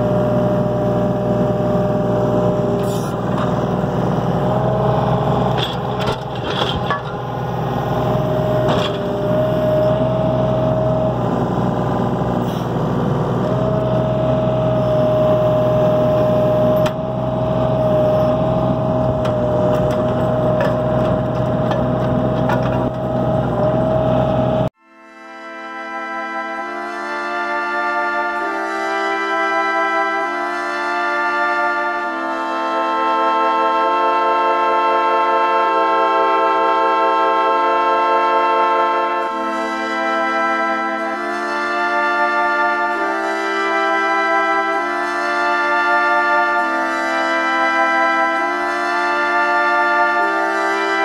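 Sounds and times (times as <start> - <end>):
diesel engine running: 0.0 - 24.8
hydraulic whine: 0.0 - 30.6.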